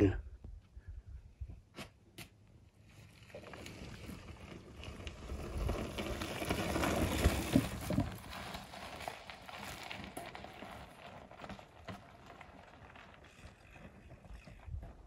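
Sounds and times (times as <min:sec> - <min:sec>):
bike tyres rolling over gravel: 0:02.4 - 0:15.0
bike knocking on rough rock: 0:03.3 - 0:15.0.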